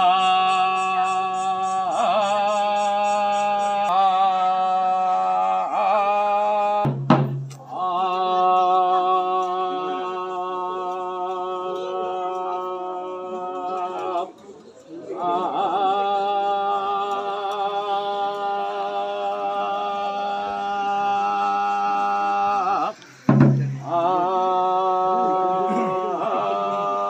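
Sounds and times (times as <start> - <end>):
man chanting in long notes: 0.0 - 6.9, 7.6 - 14.3, 15.2 - 23.0, 23.6 - 27.0
sharp knock: 23.3 - 23.8.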